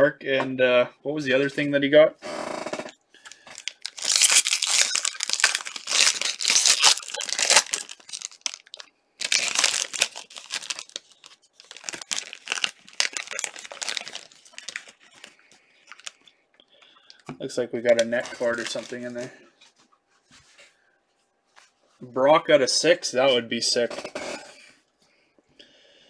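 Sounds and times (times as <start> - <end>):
foil wrapper tearing and crinkling: 3.3 - 16.2, 18.2 - 19.2.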